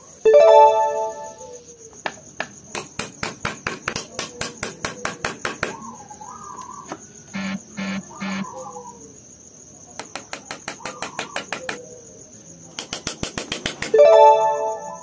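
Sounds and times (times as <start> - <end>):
crickets chirring: 0.0 - 15.0
hammer tapping nail into wood: 2.8 - 5.8, 10.0 - 11.8, 12.8 - 14.0
bird calling: 5.0 - 9.1, 10.7 - 12.1.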